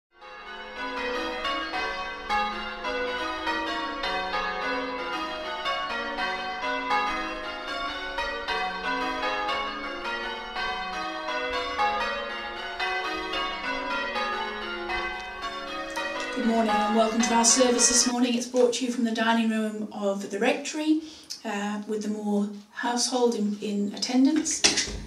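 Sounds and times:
church bells ringing: 0:00.2 - 0:19.6.

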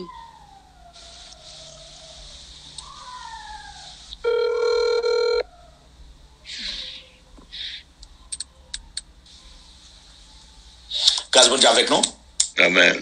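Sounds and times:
electronic ring: 0:04.2 - 0:05.4
short breathy hisses: 0:06.5 - 0:07.9.

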